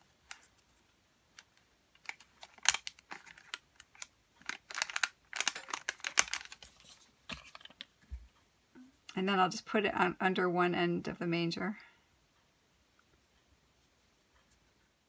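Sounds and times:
glue dots clicking and crinkling: 1.3 - 6.9.

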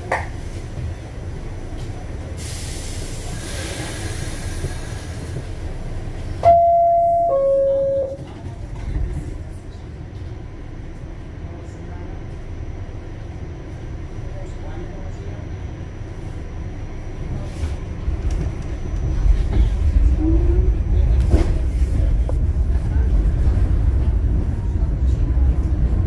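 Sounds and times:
subway car rumble: 0.0 - 26.0
hiss: 2.4 - 5.4
two-note chime: 6.4 - 8.2.

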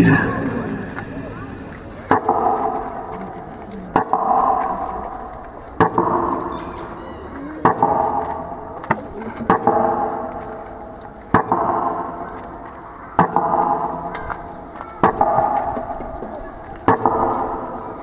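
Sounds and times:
metronome knocks: 0.0 - 3.2.

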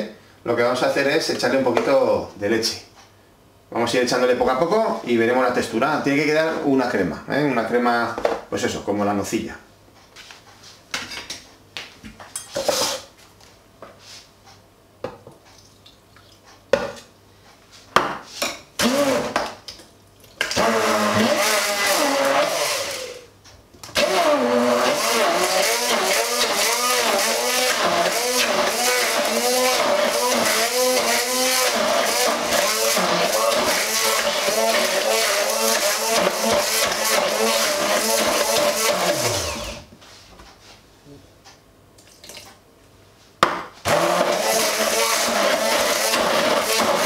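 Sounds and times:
immersion blender motor: 18.8 - 19.4, 20.5 - 23.2, 24.0 - 39.9, 43.9 - 47.0.

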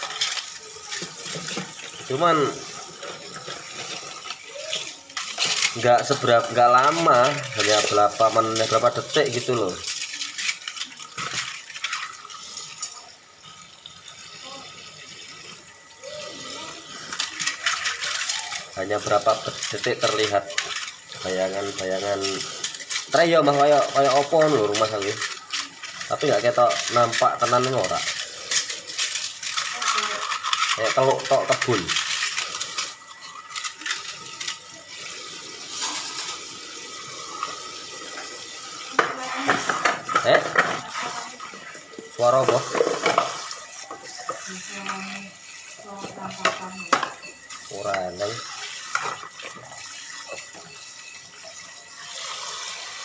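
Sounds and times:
tap water running into sink: 0.0 - 53.0
dishes clinking: 39.0 - 45.0, 46.0 - 48.0.

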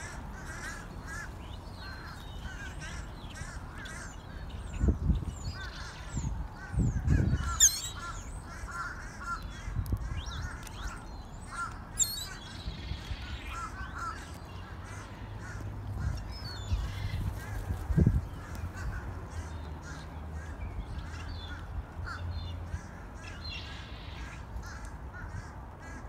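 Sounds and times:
gulls calling: 6.7 - 9.4, 10.4 - 12.6.

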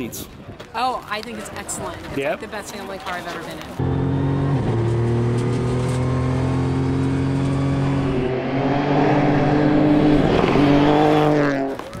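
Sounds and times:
rally car engine revving: 3.8 - 11.9.

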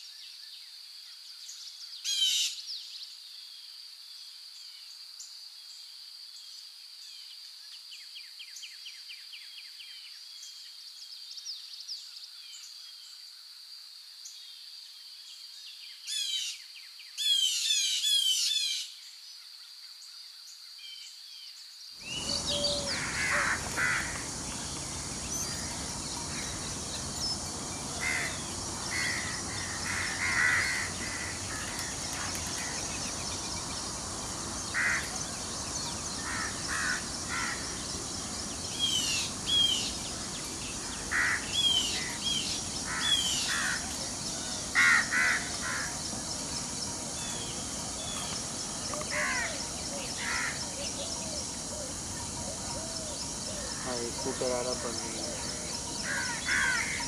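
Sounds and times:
birds calling: 22.0 - 57.0.

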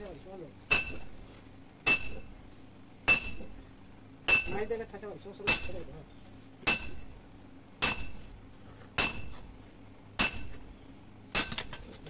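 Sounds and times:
hammer blows on anvil: 0.7 - 1.0, 3.0 - 3.5, 4.3 - 4.7, 6.6 - 7.0, 9.0 - 9.4.

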